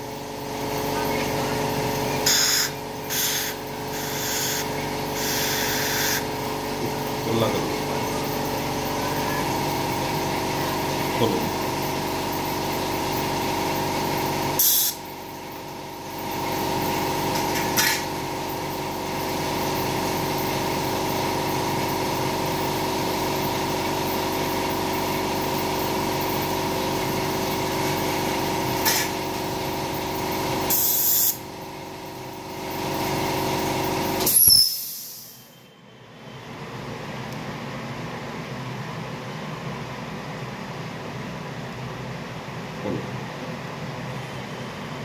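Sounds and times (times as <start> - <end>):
dental machinery humming: 0.0 - 36.4
compressed air hisses: 2.3 - 6.2, 14.6 - 15.0, 30.7 - 31.4.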